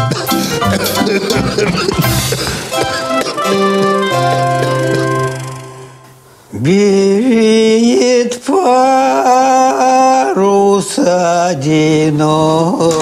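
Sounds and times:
musical chord: 0.2s - 6.3s.

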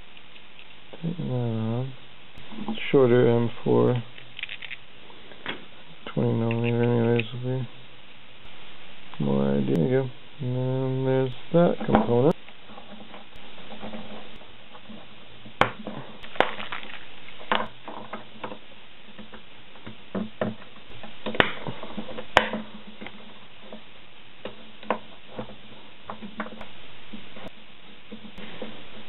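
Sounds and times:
faint low hum: 0.0s - 29.0s
plastic parts clicking together: 4.2s - 4.8s.

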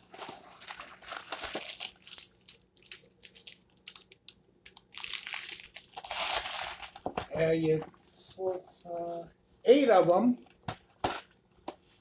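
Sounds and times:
plastic wrapping crinkling: 0.0s - 7.2s.

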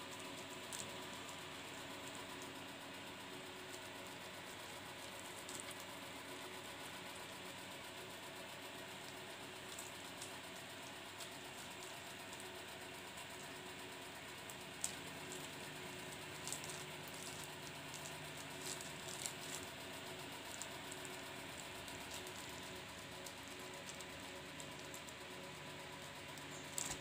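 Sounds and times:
steady low hum: 0.0s - 27.0s
plastic bag crinkling: 14.8s - 25.1s, 26.4s - 27.0s.

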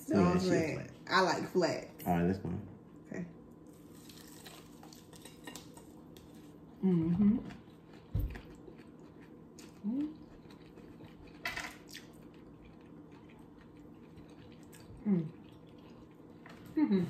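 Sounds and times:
quiet eating: 2.9s - 17.0s
person humming: 6.8s - 7.5s, 9.8s - 10.2s, 15.0s - 15.4s, 16.8s - 17.0s.

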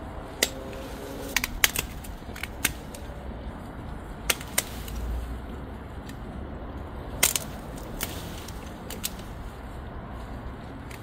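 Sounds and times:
pruning shears snipping stems: 0.3s - 3.2s, 4.1s - 5.3s, 7.1s - 9.6s.

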